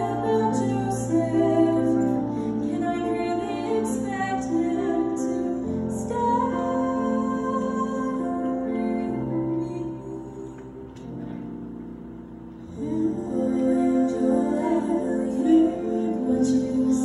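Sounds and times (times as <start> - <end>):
woman singing into a microphone: 0.0 - 10.8
keyboard chords: 0.0 - 17.0.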